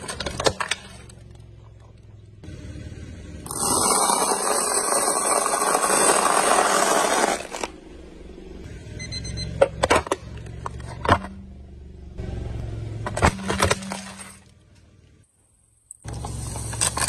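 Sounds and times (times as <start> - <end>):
brittle strips crunching under tyre: 3.5 - 7.8, 15.9 - 17.0.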